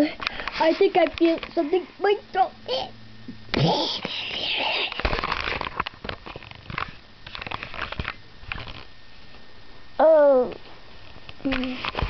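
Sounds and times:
plastic toys handling noise: 4.0s - 8.9s.

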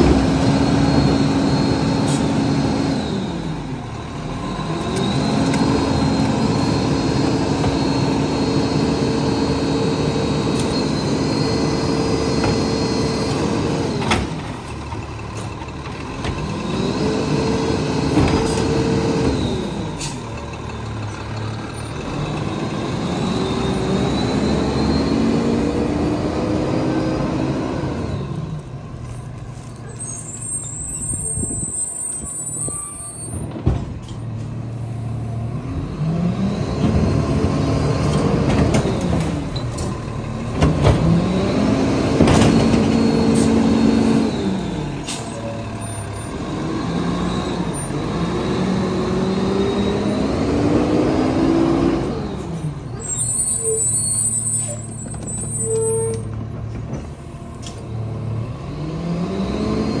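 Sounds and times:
diesel engine revving: 0.0s - 60.0s
air brakes hissing: 19.7s - 20.4s, 43.1s - 46.1s.

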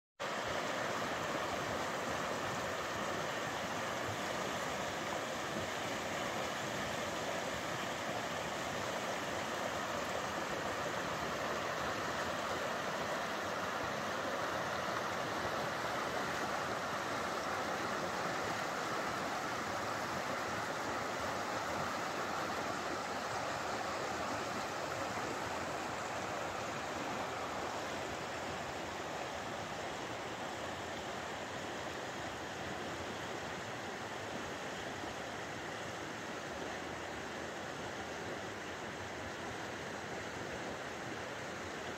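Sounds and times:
river rushing over rocks: 0.2s - 41.9s.

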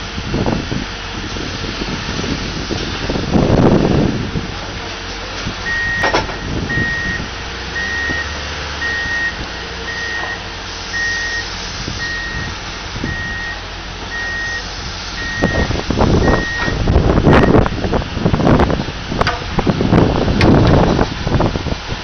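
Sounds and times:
diesel engine running: 0.0s - 22.0s
uneven rumbling noise: 0.0s - 22.0s
reversing alarm beeping: 5.6s - 17.7s.

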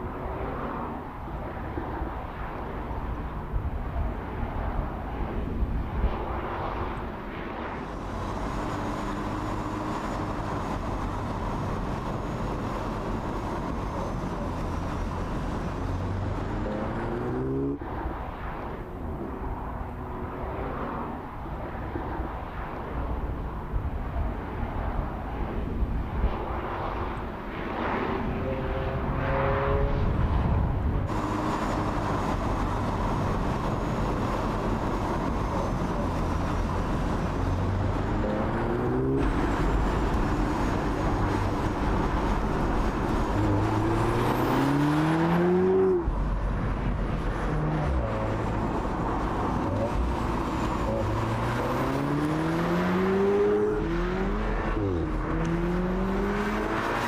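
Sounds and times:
tyre and road noise: 0.0s - 57.0s
car engine accelerating: 31.0s - 57.0s.

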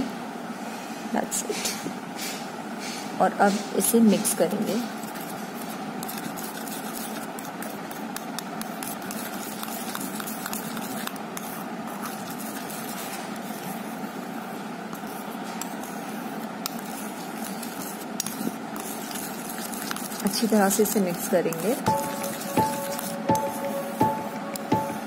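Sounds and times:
steady background hum: 0.0s - 25.0s
spoon scraping a steel bowl: 16.7s - 25.0s.

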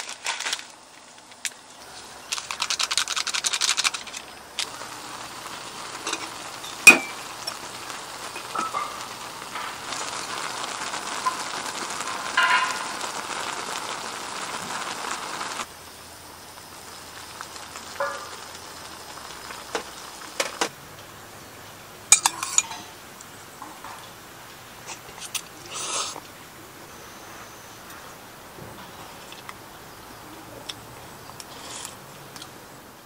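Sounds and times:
pot boiling and bubbling: 0.0s - 33.0s
metal clink: 6.9s - 7.2s, 22.1s - 22.9s.

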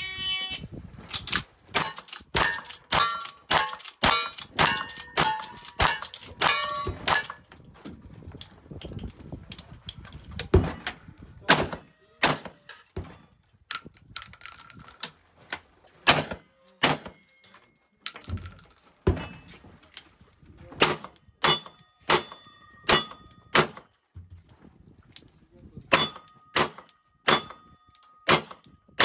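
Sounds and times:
steel targets ringing: 1.8s - 7.5s, 21.4s - 23.6s
shotgun shots: 16.0s - 17.1s.

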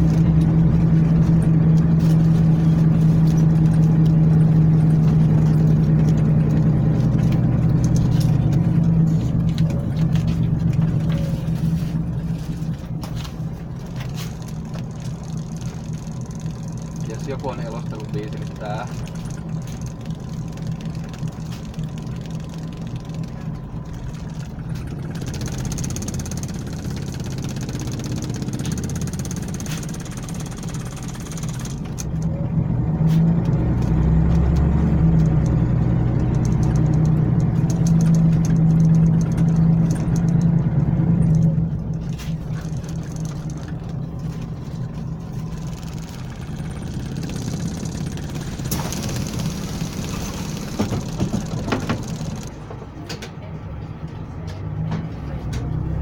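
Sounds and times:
light rattles: 0.0s - 53.5s
bus engine drone: 0.0s - 56.0s.

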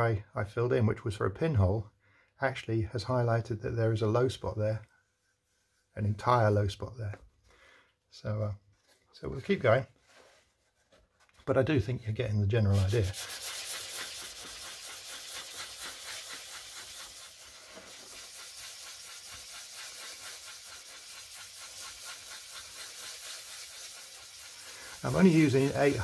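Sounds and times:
wet sandpaper rubbing hiss: 12.6s - 26.0s.

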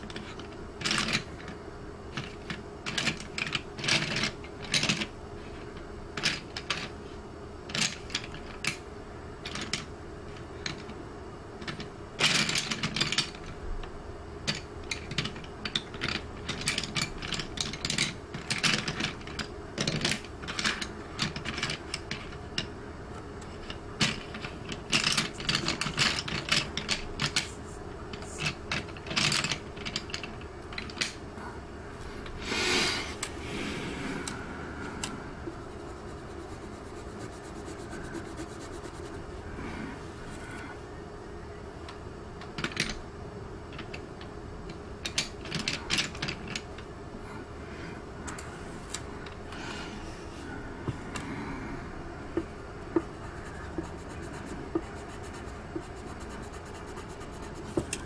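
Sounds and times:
faint steady hum: 0.0s - 58.0s
pencil scratching on paper: 35.6s - 39.2s, 53.0s - 58.0s.

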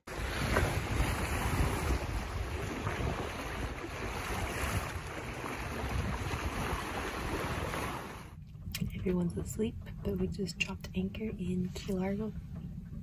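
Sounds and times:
choppy sea water rushing: 0.0s - 8.4s
wind buffeting microphone: 0.1s - 13.0s.

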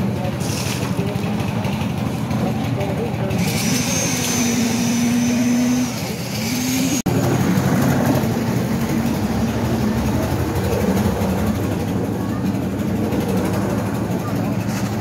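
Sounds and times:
engine running with whine: 0.0s - 15.0s.

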